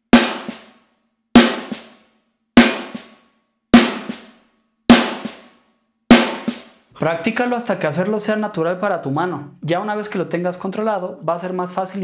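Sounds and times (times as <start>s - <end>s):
snare drum strokes: 1.4s - 2.0s, 2.6s - 3.2s, 3.8s - 4.3s, 4.9s - 5.5s, 6.1s - 6.7s.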